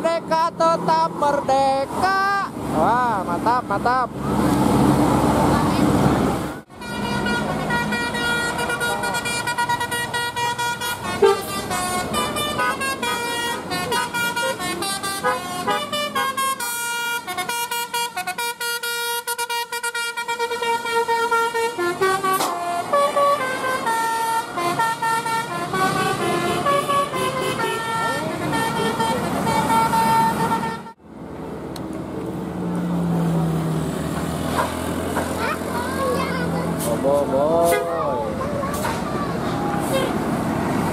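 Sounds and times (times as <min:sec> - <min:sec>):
bus engine: 0:00.0 - 0:40.9
road noise: 0:00.0 - 0:40.9
tuned air horns playing melodies: 0:06.7 - 0:31.0, 0:36.8 - 0:38.9.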